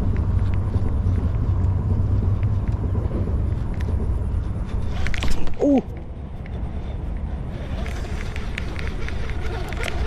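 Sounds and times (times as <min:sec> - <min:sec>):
steady low rumble: 0:00.0 - 0:10.0
person grunting: 0:05.6 - 0:05.9
fishing rod swishing: 0:07.6 - 0:10.0.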